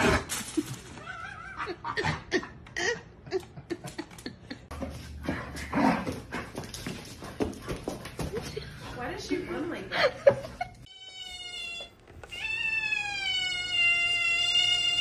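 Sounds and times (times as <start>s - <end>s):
person laughing: 0.4s - 4.7s.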